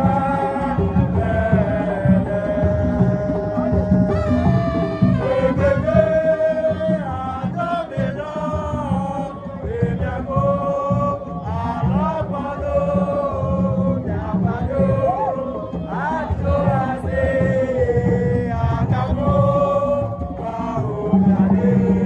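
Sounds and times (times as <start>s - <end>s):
person singing: 0.0s - 8.9s
drum beat: 0.0s - 22.0s.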